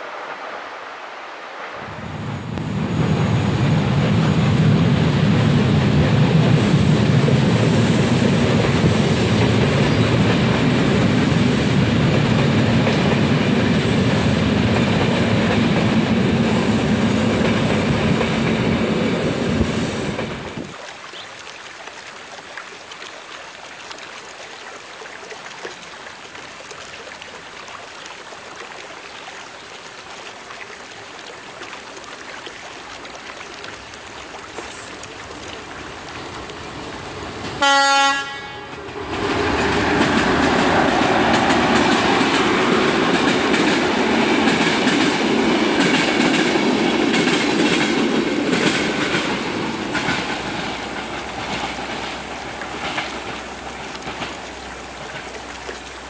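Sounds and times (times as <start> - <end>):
passenger train passing: 0.0 - 20.7, 35.3 - 55.3.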